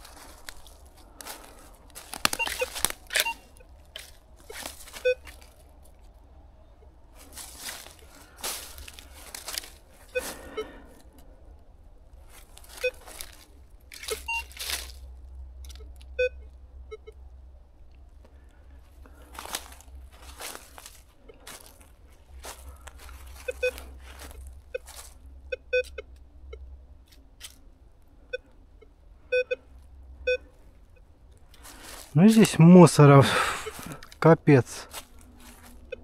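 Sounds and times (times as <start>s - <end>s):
footsteps crunching dry leaves: 0.0s - 5.8s, 7.2s - 10.8s, 12.2s - 15.2s, 19.1s - 25.2s, 31.6s - 32.7s, 34.8s - 35.9s
metal detector short low beeps: 2.4s - 3.6s, 4.5s - 5.3s, 14.1s - 14.6s, 23.4s - 23.8s, 25.5s - 26.6s, 28.3s - 29.6s, 30.3s - 30.5s.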